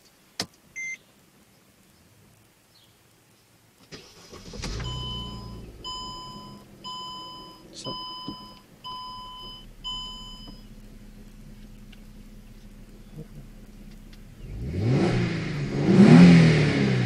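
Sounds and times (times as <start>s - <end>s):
dashboard warning chime beeps: 0.8s - 1.0s, 4.7s - 10.7s
car engine starting and idling: 3.8s - 17.0s.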